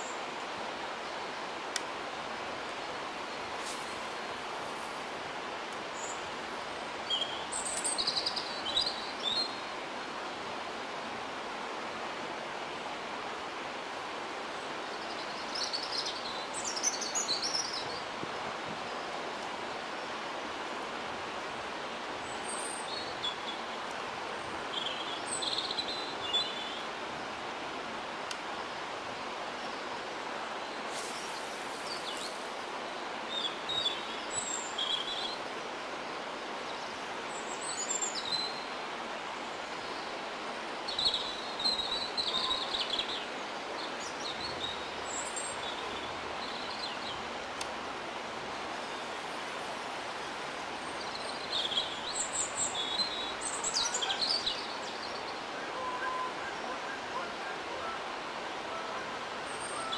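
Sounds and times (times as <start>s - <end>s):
small birds chirping: 50.8s - 56.9s.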